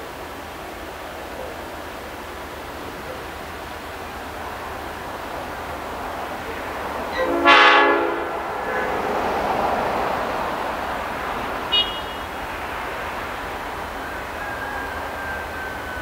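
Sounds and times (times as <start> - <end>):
train rumble: 0.0 - 16.0
diesel locomotive horn: 6.8 - 10.7, 11.5 - 16.0
higher-pitched horn toot: 7.1 - 9.0, 11.7 - 12.4.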